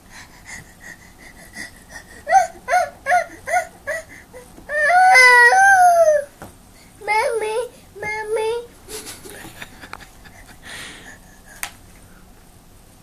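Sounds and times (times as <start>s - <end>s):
toddler crying and wailing: 2.0s - 6.4s.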